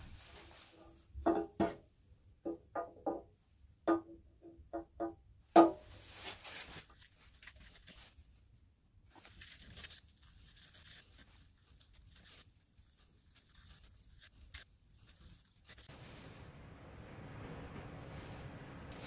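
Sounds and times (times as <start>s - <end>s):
low hum: 15.9s - 19.0s.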